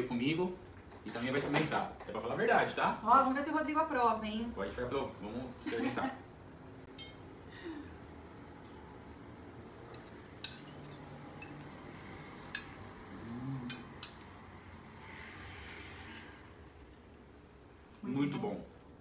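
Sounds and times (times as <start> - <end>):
forks clinking on plates: 7.0 - 7.3, 10.0 - 11.7.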